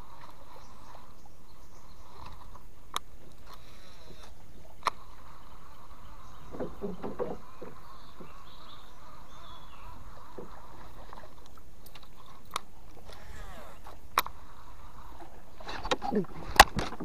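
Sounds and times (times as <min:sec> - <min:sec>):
knocks against wooden boat: 0:06.5 - 0:08.4
steady hum: 0:07.6 - 0:16.9.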